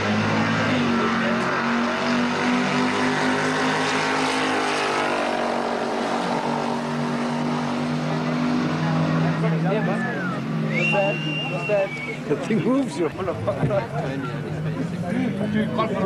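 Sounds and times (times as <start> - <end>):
car passing by: 0.0 - 11.7
racing car engines drone: 0.0 - 16.0.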